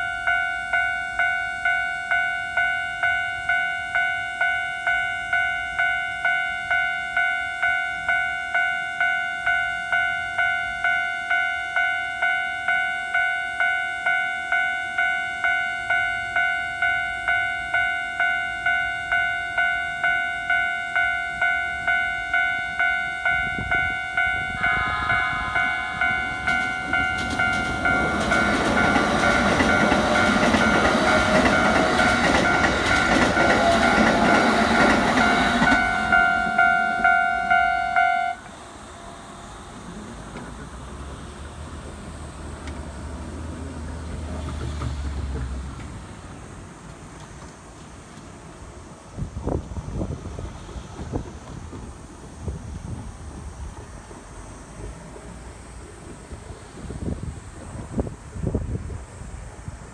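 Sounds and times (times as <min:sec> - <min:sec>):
level crossing warning bell: 0:00.0 - 0:41.2
electric train passing: 0:00.0 - 0:59.9
rail joint clatter: 0:23.3 - 0:36.9, 0:39.7 - 0:48.6.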